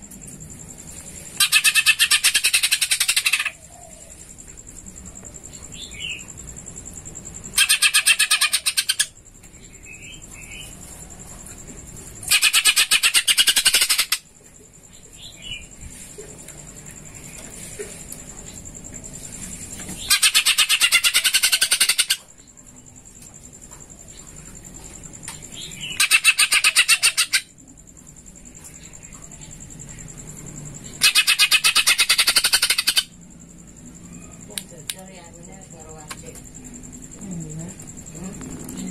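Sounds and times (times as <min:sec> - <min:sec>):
songbird chattering rattle: 0:00.5 - 0:10.8, 0:12.0 - 0:27.6, 0:28.3 - 0:38.9
rapid bird chattering: 0:01.4 - 0:03.6, 0:07.5 - 0:10.6, 0:12.2 - 0:14.3, 0:20.0 - 0:22.3, 0:25.6 - 0:27.5, 0:30.9 - 0:33.2
bird singing: 0:05.4 - 0:06.4, 0:07.4 - 0:10.8, 0:25.2 - 0:27.7, 0:28.3 - 0:36.9.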